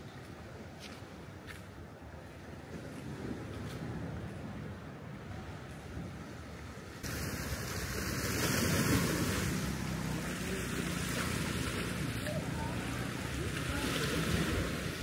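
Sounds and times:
sea surf: 2.0s - 15.0s.

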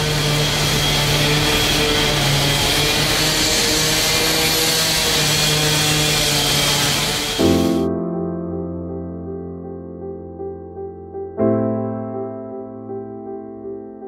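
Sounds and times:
construction machinery running: 0.0s - 7.8s.

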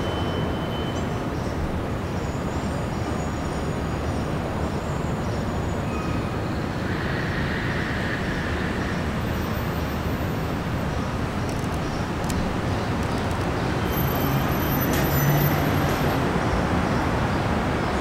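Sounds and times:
faint high wheel squeal: 0.0s - 1.3s, 13.8s - 16.2s
train wheels rumbling on rail: 6.8s - 16.8s.

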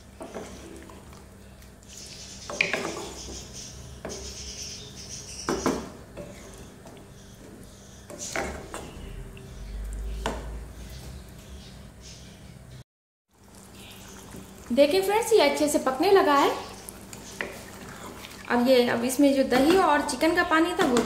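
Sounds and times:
wooden spatula scraping a pot: 0.1s - 4.7s, 5.5s - 9.2s.

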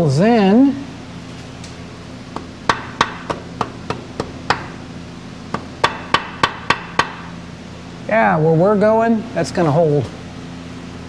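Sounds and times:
hammer tapping metal tool: 5.5s - 7.3s.

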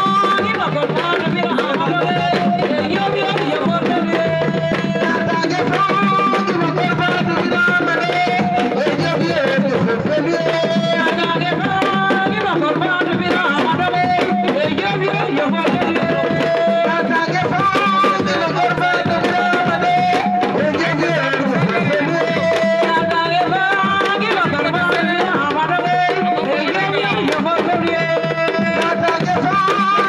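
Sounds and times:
fast hand drumming: 0.0s - 30.0s.

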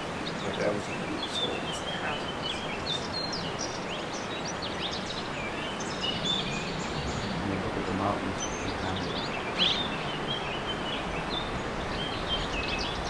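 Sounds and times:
small birds chirping: 0.0s - 13.0s
steady outdoor hiss: 0.0s - 13.0s.

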